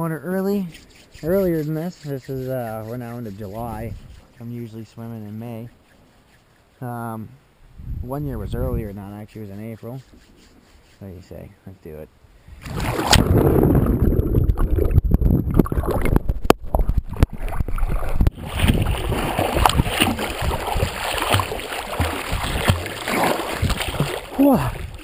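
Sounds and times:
water splashing and sloshing: 12.6s - 25.0s.

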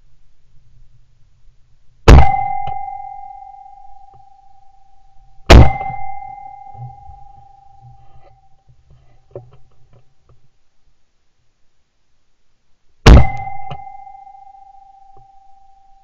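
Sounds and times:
ringing tone: 2.2s - 8.7s, 13.1s - 16.0s
shotgun shots: 5.5s - 6.0s, 13.1s - 13.7s.

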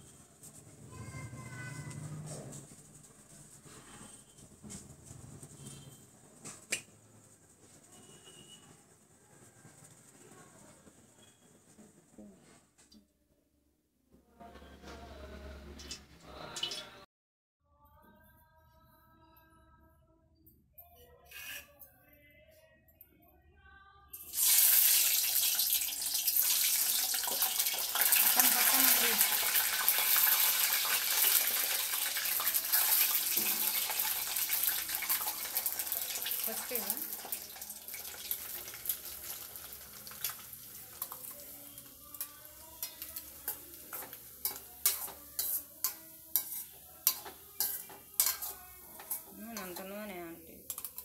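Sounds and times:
faint background music: 0.0s - 12.8s, 14.1s - 51.0s
egg sizzling in hot oil: 24.2s - 49.9s
spoon clinking and scraping a pan: 37.1s - 50.0s, 50.6s - 51.0s.

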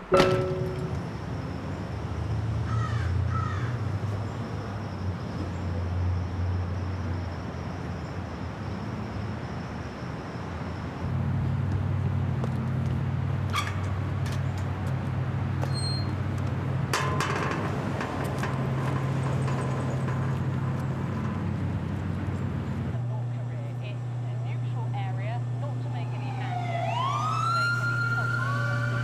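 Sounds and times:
sharp ringing knocks: 0.0s - 1.5s
low city hum: 0.0s - 29.0s.

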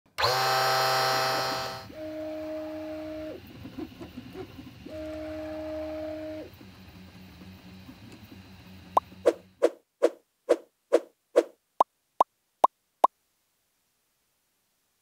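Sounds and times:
stepper motors whining: 0.1s - 9.2s.

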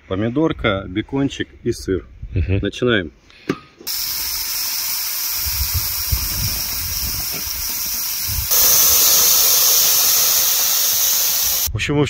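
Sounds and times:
food sizzling on grill: 3.9s - 11.7s.

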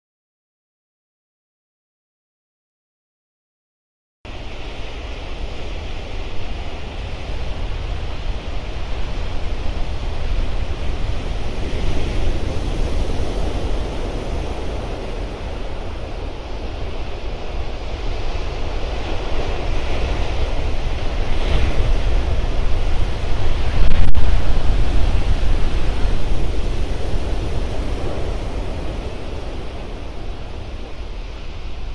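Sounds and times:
surf breaking on beach: 4.3s - 31.9s
wind rumbling on microphone: 4.3s - 31.9s.

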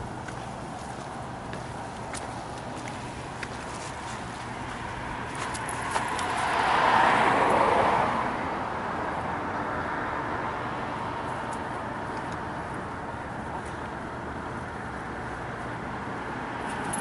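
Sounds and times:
background traffic: 0.0s - 17.0s.

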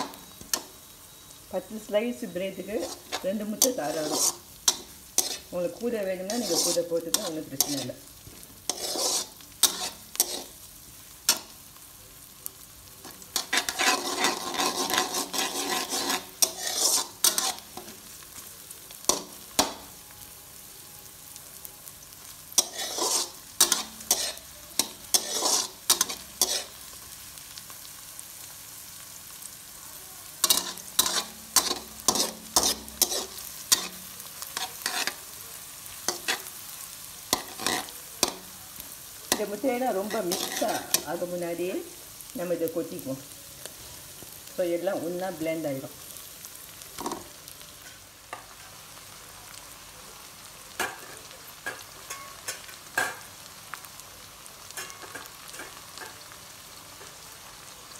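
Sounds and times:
oil sizzling: 0.0s - 57.9s
spatula scraping a wok: 1.8s - 11.8s, 13.0s - 20.0s, 21.9s - 29.6s, 30.3s - 41.5s, 50.8s - 53.4s, 54.6s - 56.3s.

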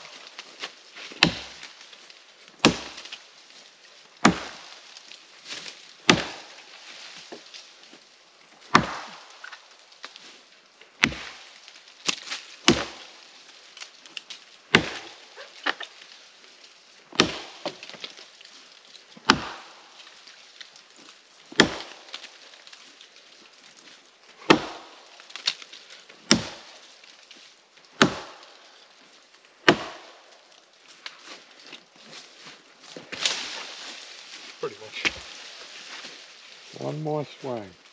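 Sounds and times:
axe chopping wood: 1.1s - 1.8s, 2.6s - 3.2s, 4.2s - 4.7s, 6.0s - 6.6s, 8.7s - 9.6s, 11.0s - 13.1s, 14.7s - 15.9s, 17.2s - 18.0s, 19.2s - 19.8s, 21.5s - 22.3s, 24.4s - 25.6s, 26.2s - 26.8s, 28.0s - 28.5s, 29.6s - 30.2s.

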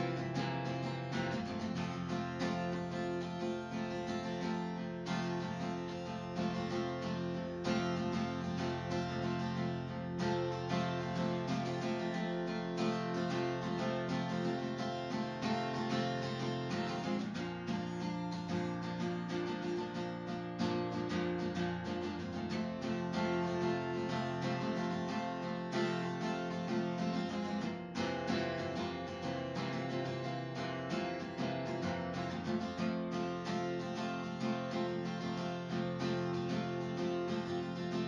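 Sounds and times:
strummed acoustic guitar music: 0.0s - 38.0s.

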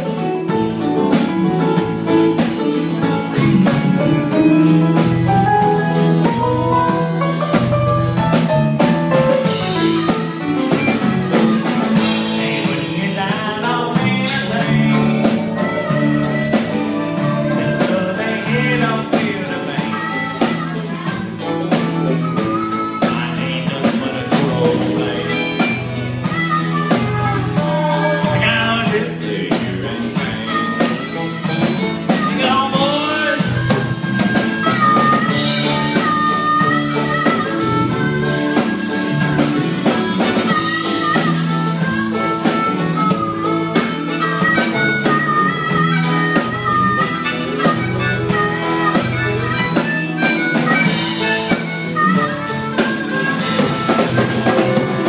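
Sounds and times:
live country band playing: 0.0s - 55.0s.

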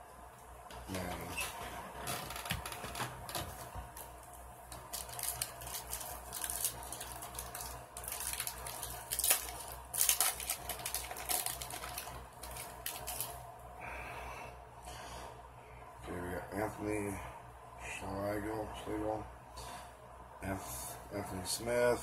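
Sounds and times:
steady low hum: 0.0s - 22.0s
foil wrapper crinkling: 4.7s - 13.4s.

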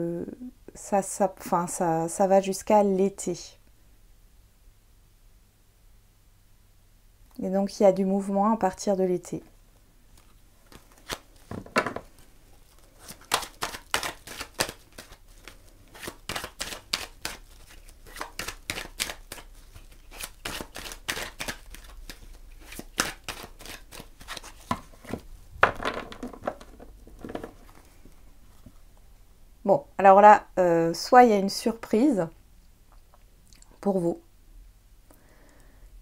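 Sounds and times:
cards being shuffled: 10.1s - 27.9s.

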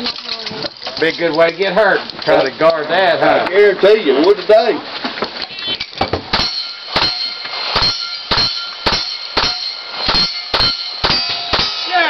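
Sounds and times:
short metallic ring: 5.8s - 12.0s
rifle shots: 6.3s - 12.0s.

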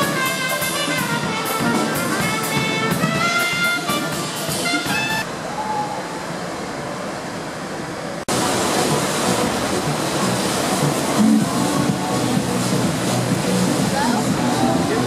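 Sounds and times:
brass jazz music: 0.0s - 5.3s
noisy background: 0.0s - 15.0s.

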